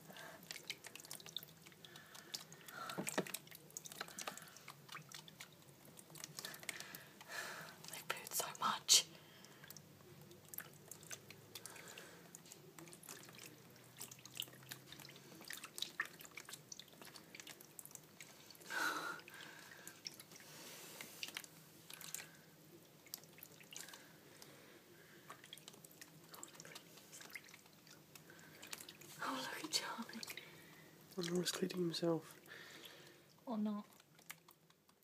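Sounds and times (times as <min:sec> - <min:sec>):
tiny splashes and clicks: 0:00.0 - 0:35.0
water swish: 0:25.3 - 0:31.9.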